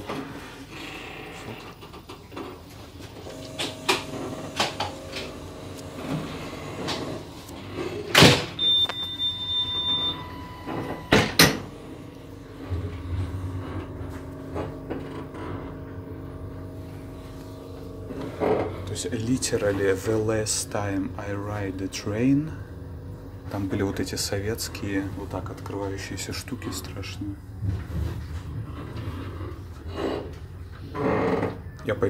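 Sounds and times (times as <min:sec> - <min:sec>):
short high beep: 0:08.6 - 0:11.2.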